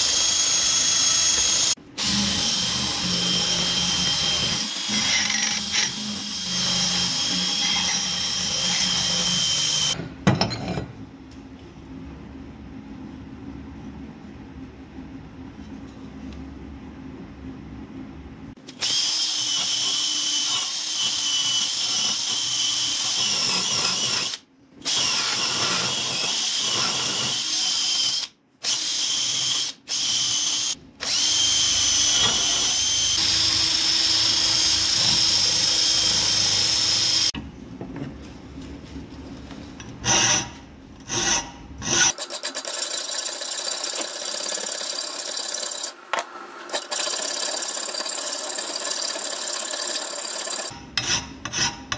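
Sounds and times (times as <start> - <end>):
power tool whining: 29.2 - 37.4.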